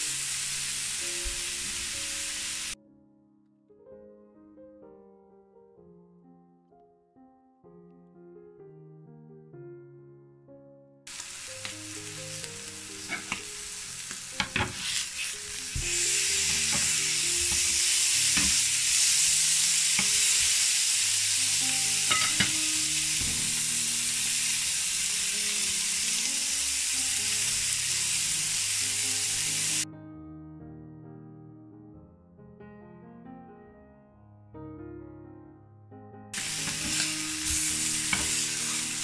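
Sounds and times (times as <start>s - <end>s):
steaks sizzling in a grill pan: 0.0s - 2.8s, 11.1s - 29.8s, 36.4s - 39.0s
soft music: 0.0s - 39.0s.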